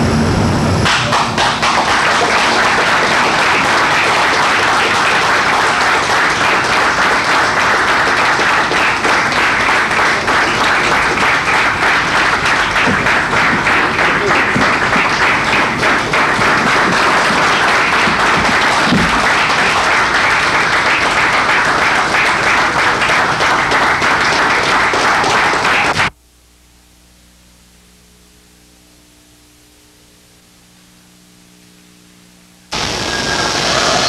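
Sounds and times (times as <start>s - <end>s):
quiet hum with held tones: 0.0s - 33.8s
crowd applauding: 0.8s - 26.1s.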